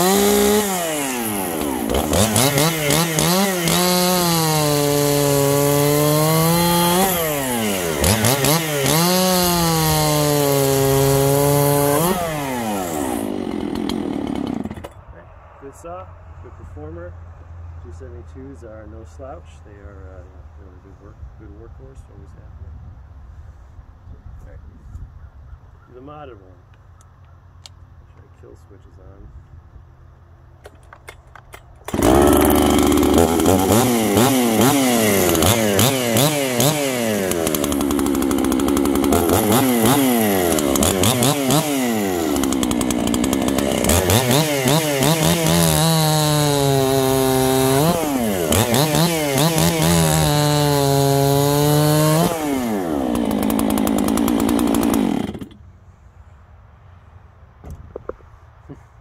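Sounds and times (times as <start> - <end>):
chainsaw revving: 0.0 - 15.0, 31.8 - 55.6.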